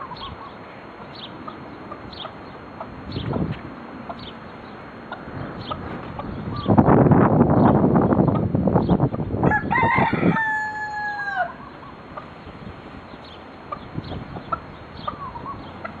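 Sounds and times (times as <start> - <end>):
rooster crowing: 9.4 - 11.8.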